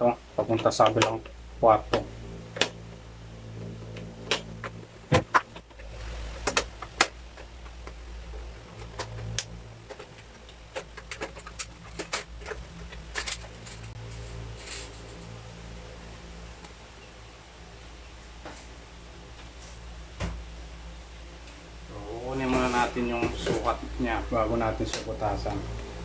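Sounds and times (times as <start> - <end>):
low steady hum: 0.0 - 26.0
objects clicking and knocking: 8.7 - 15.3.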